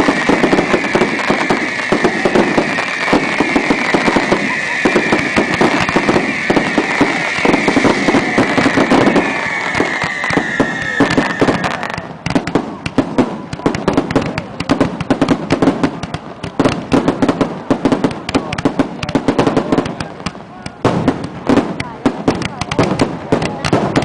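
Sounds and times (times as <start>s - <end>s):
high shrill falling tone: 0.0s - 12.0s
fireworks bangs and crackles: 0.0s - 24.0s.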